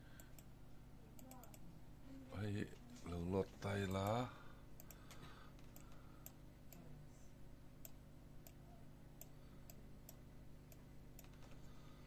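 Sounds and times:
faint low hum: 0.0s - 12.0s
computer mouse clicks: 1.2s - 1.6s, 4.8s - 6.8s, 7.8s - 8.6s, 9.2s - 11.6s.

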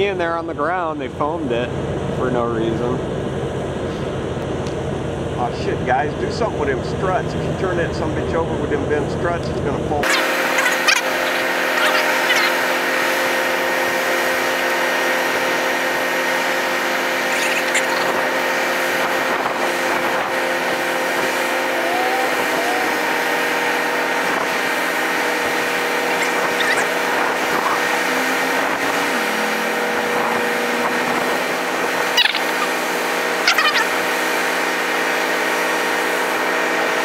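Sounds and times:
wheel loader diesel engine: 9.8s - 37.0s.

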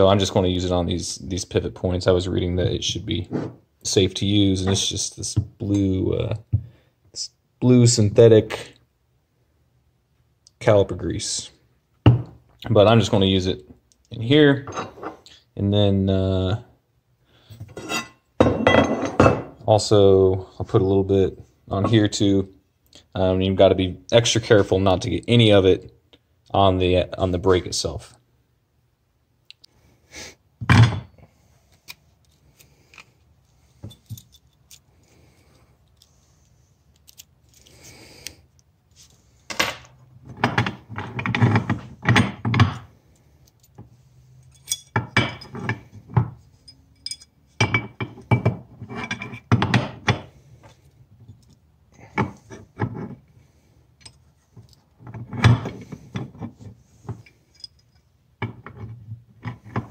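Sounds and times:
metal tools clinking: 33.7s - 34.9s, 44.4s - 45.9s, 46.5s - 49.5s, 57.2s - 58.2s.

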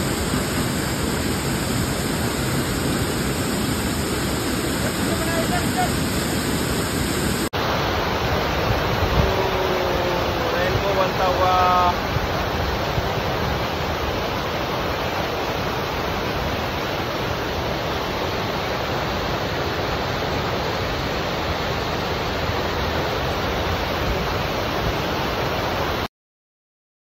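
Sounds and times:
waterfall pouring onto rocks: 4.8s - 5.9s, 7.6s - 23.8s.

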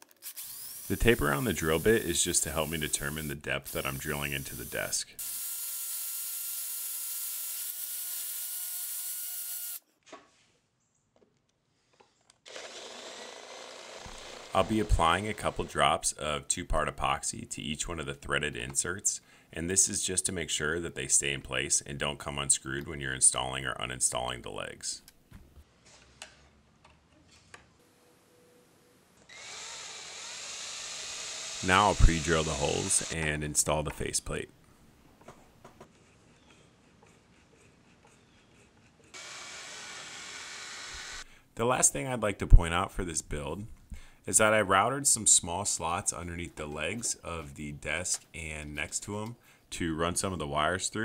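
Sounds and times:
power drill boring into wood: 0.2s - 0.9s, 5.2s - 9.8s, 12.5s - 15.6s, 29.3s - 33.2s, 39.2s - 41.3s.

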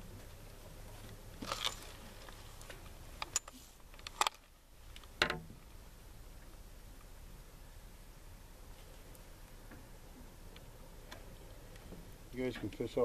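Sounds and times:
light clicks and knocks in boat: 8.8s - 13.0s.

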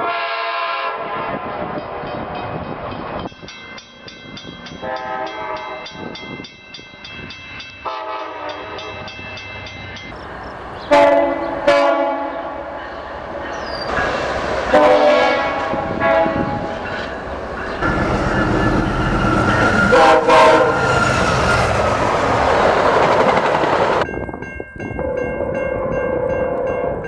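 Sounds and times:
train horn blasts: 0.0s - 2.1s, 4.8s - 6.0s, 7.8s - 9.2s, 10.9s - 12.8s, 14.7s - 16.7s, 17.8s - 21.4s
train passing: 0.0s - 27.0s.

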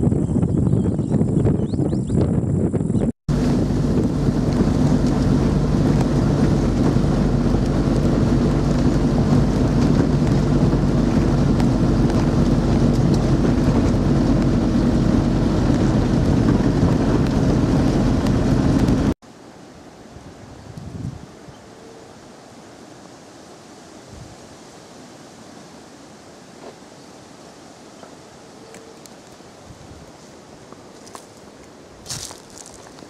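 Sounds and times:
tyre and road noise: 3.3s - 19.2s, 30.0s - 33.0s
vehicle engine humming: 3.3s - 19.2s.

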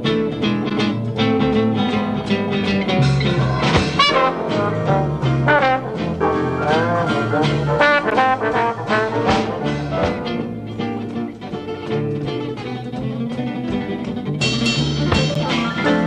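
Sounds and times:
jazz rhythm section: 0.0s - 16.0s
trombone phrases: 4.0s - 10.1s.

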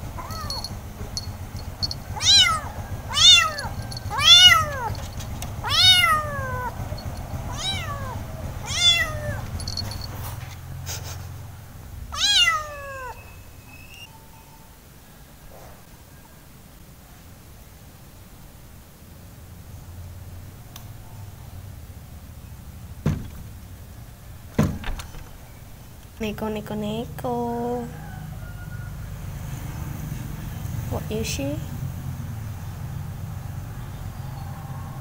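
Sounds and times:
low steady hum: 0.0s - 15.2s
kitten meowing: 0.1s - 0.6s, 2.2s - 5.0s, 5.6s - 6.8s, 7.5s - 9.6s, 12.1s - 13.4s.

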